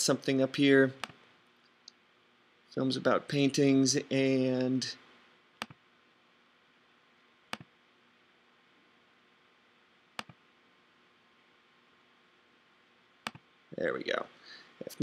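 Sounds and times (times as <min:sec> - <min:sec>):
faint room hiss: 0:00.0 - 0:15.0
mouse double-clicks: 0:10.2 - 0:10.4, 0:13.2 - 0:13.4.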